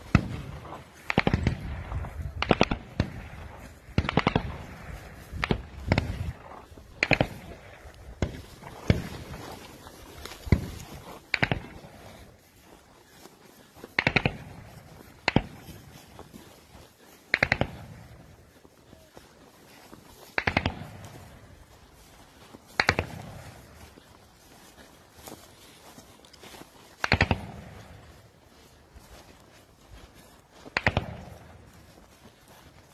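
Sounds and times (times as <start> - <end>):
rifle gunfire: 0.0 - 9.7, 10.5 - 11.9, 14.0 - 14.6, 17.3 - 17.9, 20.4 - 21.0.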